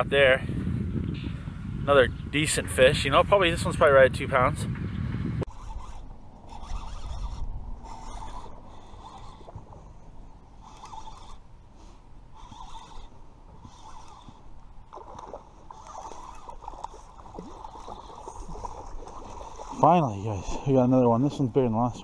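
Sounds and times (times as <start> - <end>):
fishing reel cranking: 5.4 - 9.7, 10.6 - 11.5, 12.3 - 19.9
fish splashing in water: 14.8 - 19.8.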